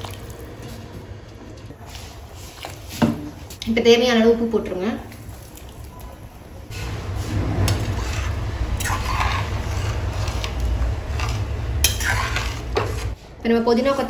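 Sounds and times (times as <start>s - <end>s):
metal ladle stirring in a pot: 6.7s - 13.2s.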